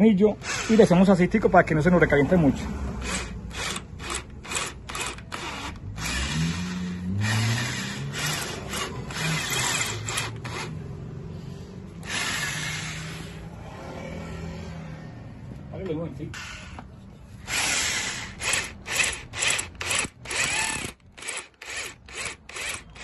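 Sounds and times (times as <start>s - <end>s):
electric drill grinding metal: 3.0s - 10.8s, 12.0s - 13.4s, 17.4s - 23.0s.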